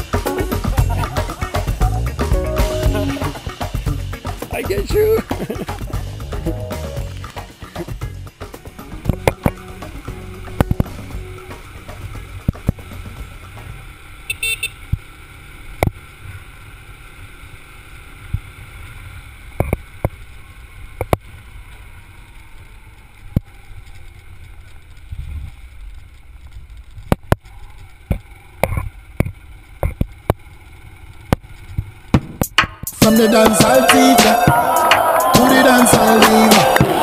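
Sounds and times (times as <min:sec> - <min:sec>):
wind rumble: 0:00.0 - 0:14.3
motorcycle engine: 0:00.0 - 0:22.4.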